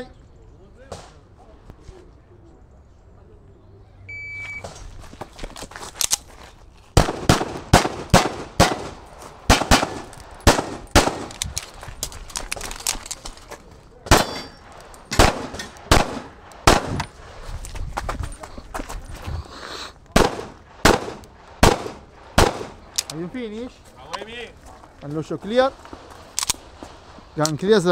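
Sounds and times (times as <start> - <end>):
electronic start beep: 4.1 - 4.6
pistol shots with echo: 7.0 - 11.4, 14.1 - 17.1, 20.1 - 23.0.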